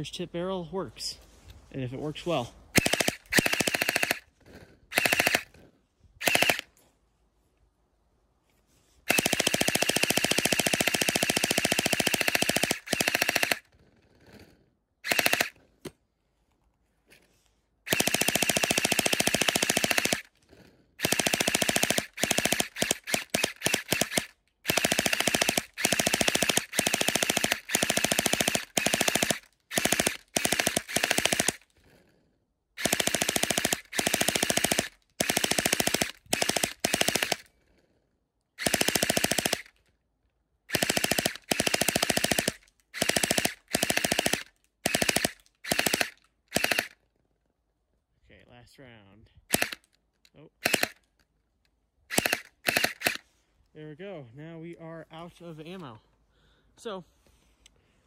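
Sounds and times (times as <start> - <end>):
gel blaster firing bursts: 2.7 - 4.3, 4.9 - 5.5, 6.2 - 6.7, 9.1 - 13.7, 15.0 - 15.6, 17.9 - 20.3, 21.0 - 31.6, 32.8 - 37.5, 38.6 - 39.8, 40.7 - 47.0, 49.5 - 49.9, 50.6 - 51.0, 52.1 - 53.2.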